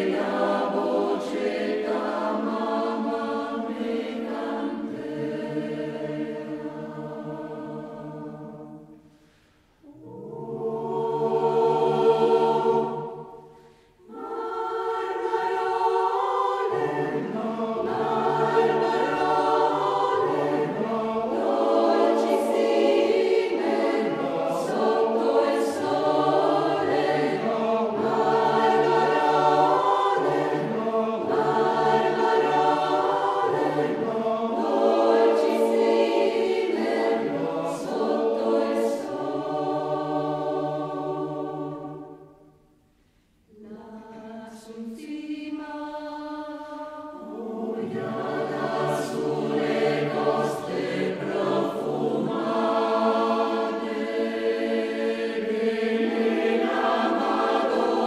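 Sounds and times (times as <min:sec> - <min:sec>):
choir singing in harmony: 0:00.0 - 0:58.0.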